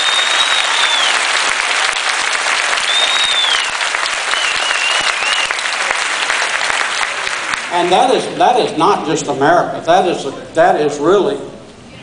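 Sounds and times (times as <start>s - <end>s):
high wavering whistles: 0.0s - 1.2s, 2.8s - 5.5s
audience applauding: 0.0s - 8.2s.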